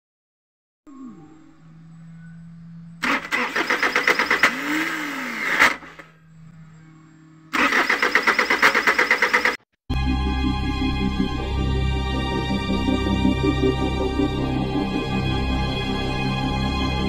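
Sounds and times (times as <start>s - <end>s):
faint steady hum: 0.9s - 7.6s
diesel engine cranking: 3.0s - 6.2s, 7.5s - 9.7s.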